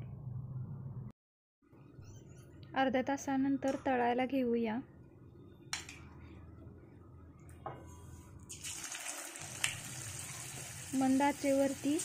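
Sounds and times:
oil sizzling deep-frying: 8.5s - 12.0s.

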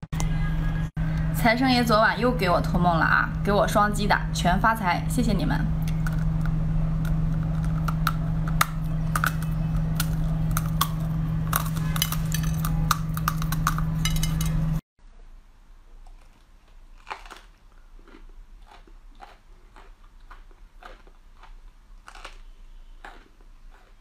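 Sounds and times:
steady low hum: 0.2s - 17.0s
corn crunching when bitten: 5.9s - 14.0s, 16.0s - 24.0s
brussels sprout bitten: 16.0s - 24.0s.

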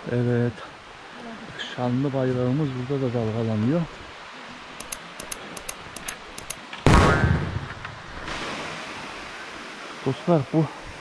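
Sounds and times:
stream and waterfall rushing: 0.4s - 6.8s, 8.2s - 11.0s
faint high ticks: 4.8s - 6.6s.

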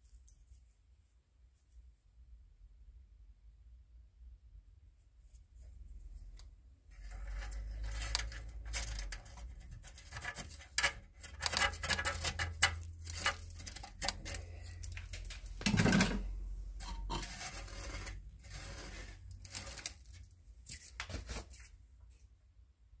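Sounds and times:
small clicks and crackles: 6.4s - 15.7s, 17.4s - 21.7s
fingers raking gritty deposits: 7.0s - 16.2s, 17.0s - 21.7s.

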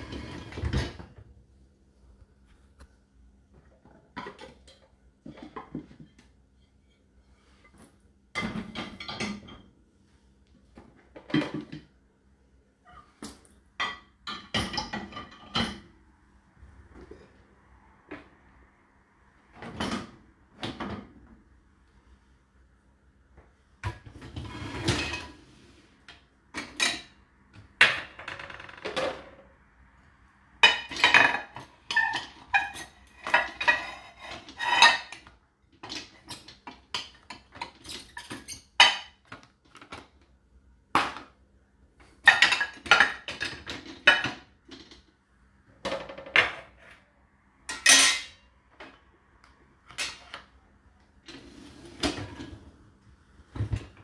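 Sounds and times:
dishwasher racks sliding: 0.0s - 1.1s, 24.0s - 25.8s, 51.3s - 52.8s
dishes clinking in dishwasher racks: 8.4s - 9.7s, 13.8s - 16.0s, 23.8s - 25.4s, 26.6s - 27.2s, 30.6s - 39.3s, 42.2s - 45.0s, 47.7s - 48.4s.

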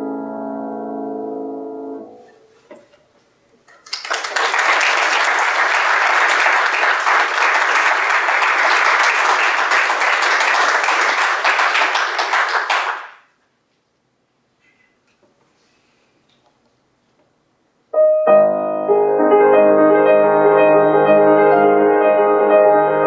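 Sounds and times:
audience applauding: 3.7s - 13.3s.

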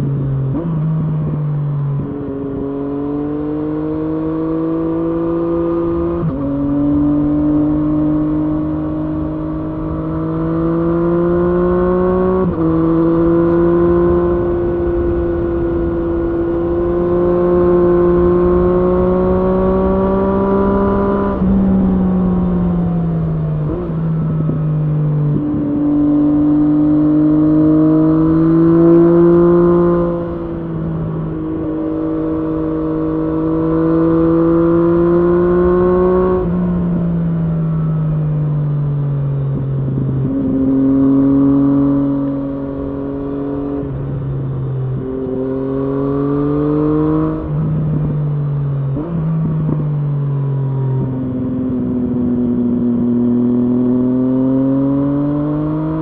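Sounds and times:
motorcycle engine revving through gears: 0.0s - 56.0s.

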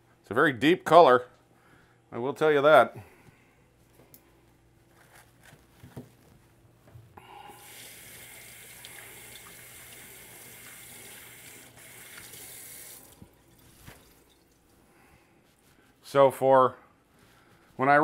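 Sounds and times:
tap running into a sink: 7.7s - 14.2s.

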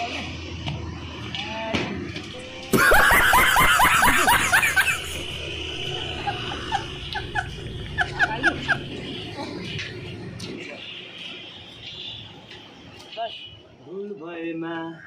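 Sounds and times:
burst of laughter: 2.7s - 5.2s
short chirps of laughter: 2.7s - 5.3s.

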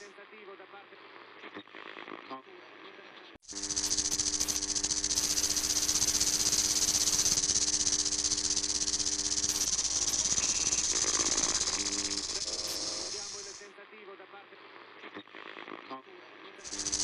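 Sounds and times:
loud fluttering hiss: 3.5s - 13.6s, 16.6s - 17.0s.

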